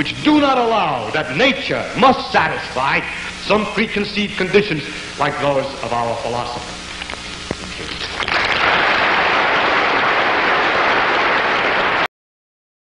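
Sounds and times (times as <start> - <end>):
audience applauding: 8.0 - 12.1.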